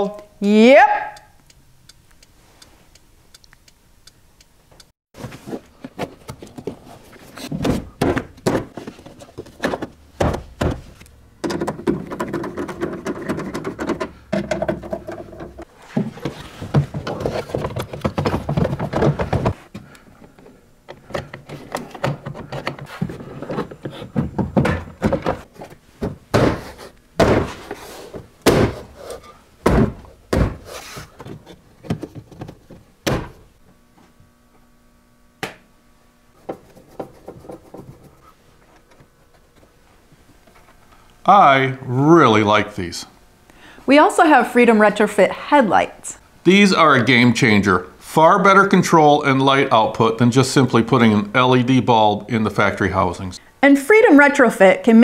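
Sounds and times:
plastic trim panels knocking and clipping: 11.4s - 15.6s.

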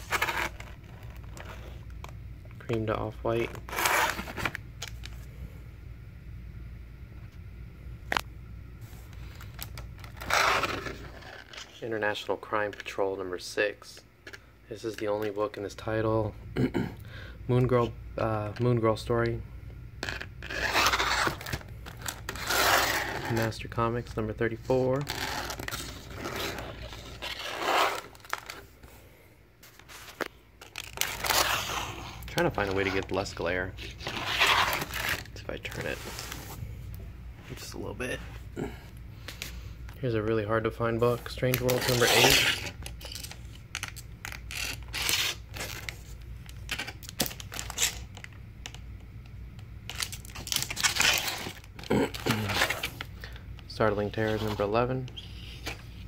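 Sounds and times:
plastic cases scraping and rustling: 3.4s - 5.2s, 24.7s - 28.7s, 29.6s - 36.6s
plastic bag crinkling: 24.9s - 28.8s, 29.6s - 36.4s.

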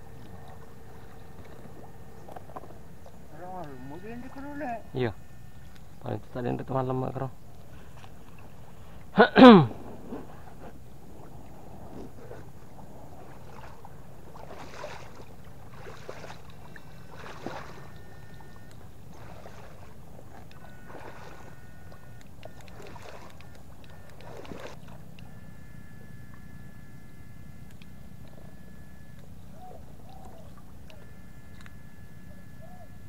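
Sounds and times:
water sloshing and splashing: 0.0s - 6.0s, 10.0s - 25.6s
faint thin whine: 0.0s - 33.0s.

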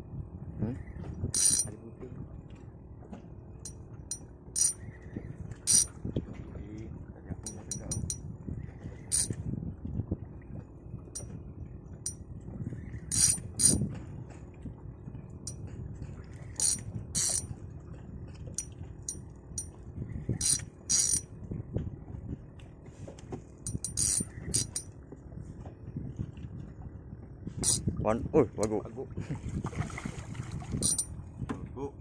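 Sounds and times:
fishing reel clicks: 1.4s - 1.7s, 4.6s - 4.8s, 5.7s - 5.9s, 9.1s - 9.4s, 13.1s - 13.8s, 16.6s - 17.5s, 20.4s - 21.2s, 23.7s - 24.8s, 27.6s - 27.8s
fishing reel ratcheting: 1.4s - 1.7s, 4.1s - 4.8s, 5.7s - 5.9s, 7.5s - 8.2s, 9.1s - 9.4s, 13.1s - 13.9s, 16.6s - 17.5s, 20.4s - 21.3s, 23.7s - 24.9s, 27.6s - 27.8s, 30.8s - 31.1s.

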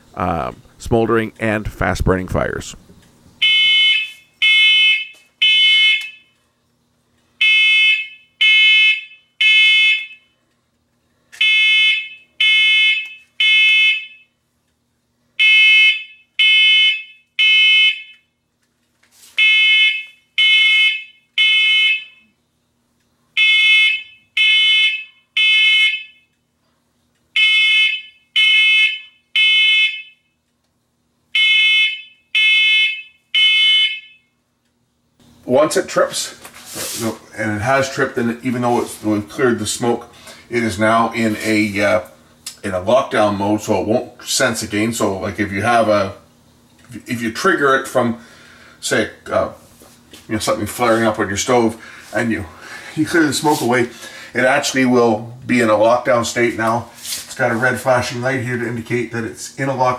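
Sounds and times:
smoke alarm beeping: 3.3s - 6.4s, 7.4s - 10.4s, 11.4s - 14.4s, 15.4s - 18.4s, 19.4s - 22.4s, 23.4s - 26.5s, 27.3s - 30.4s, 31.3s - 34.4s.

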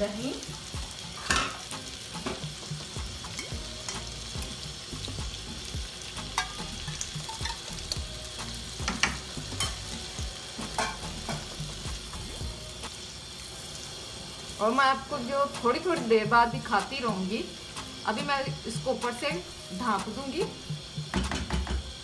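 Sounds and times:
food sizzling in a wok: 0.0s - 22.0s
spatula clicking and scraping pan: 6.2s - 8.0s, 10.7s - 11.5s.

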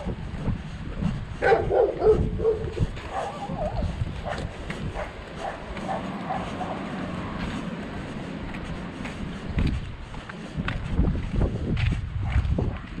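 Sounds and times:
wind buffeting microphone: 0.0s - 13.0s
dog barking and yelping: 1.4s - 7.0s.

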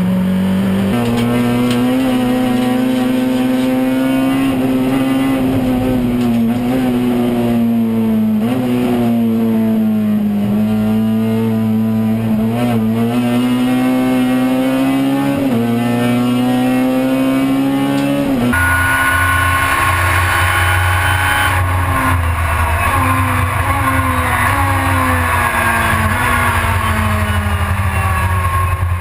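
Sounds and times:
high-pitched race car engine: 0.0s - 29.0s
race car engine revving: 0.0s - 29.0s.

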